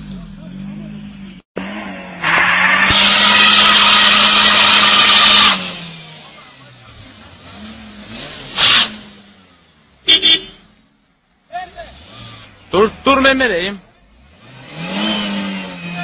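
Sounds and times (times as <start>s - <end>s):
loud blast: 2.2s - 5.7s
race cars revving past: 14.2s - 16.0s.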